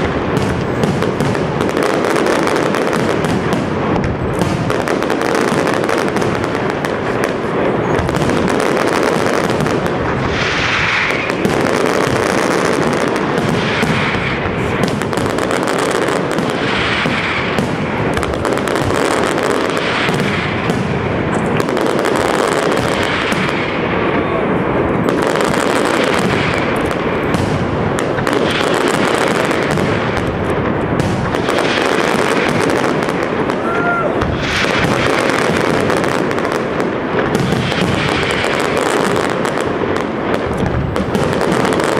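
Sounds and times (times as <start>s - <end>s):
fireworks bursts and bangs: 0.0s - 41.9s
fireworks crackling: 0.0s - 41.9s.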